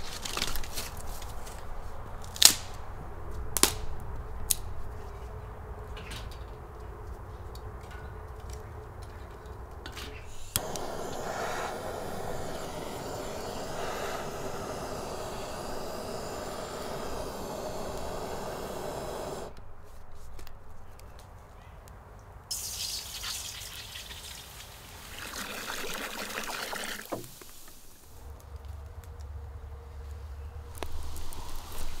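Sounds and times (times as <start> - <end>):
gas torch igniter click: 10.3 - 19.6
gas torch flame hissing: 10.3 - 19.7, 30.8 - 32.0.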